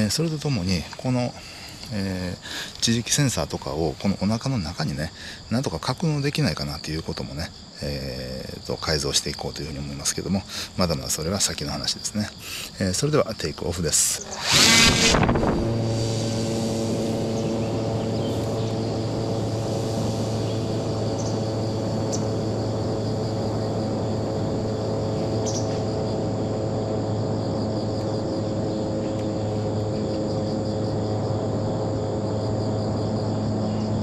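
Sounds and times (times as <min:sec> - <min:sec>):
model airplane electric motor: 0:14.0 - 0:34.0.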